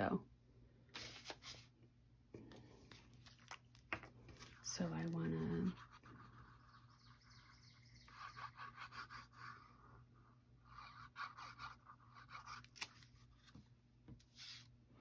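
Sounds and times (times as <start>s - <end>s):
cardstock rustling and scraping: 12.6s - 14.7s.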